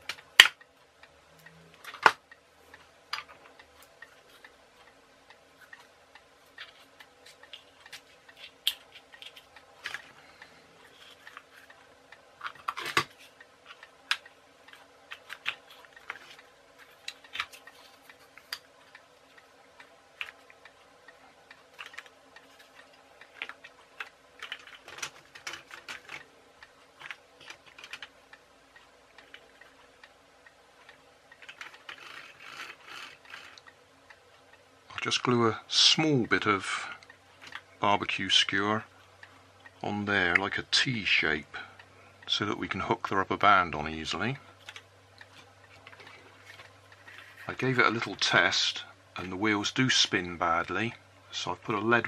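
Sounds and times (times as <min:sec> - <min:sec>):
faint steady hum: 0:00.0 - 0:52.0
small plastic parts clicking: 0:06.5 - 0:10.2, 0:12.4 - 0:19.0, 0:21.7 - 0:28.2, 0:30.8 - 0:33.7.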